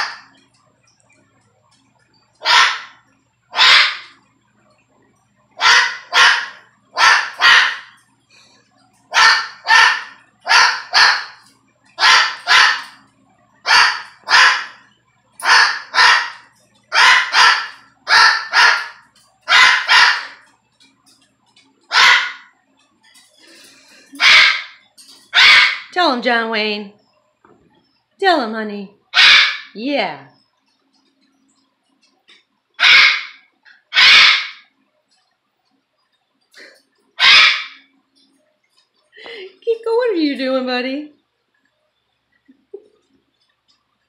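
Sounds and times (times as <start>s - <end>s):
small dog barking: 2.4s - 2.9s, 5.6s - 8.0s, 9.1s - 11.4s, 12.0s - 13.0s, 13.7s - 14.8s, 15.4s - 20.4s, 21.9s - 22.5s
cockatoo mimicking dog barks: 2.4s - 4.2s, 5.6s - 8.0s, 9.1s - 11.4s, 12.0s - 13.0s, 13.6s - 14.8s, 15.4s - 20.4s, 21.9s - 22.5s, 24.2s - 25.9s, 29.1s - 29.8s, 32.8s - 34.7s, 37.2s - 37.9s.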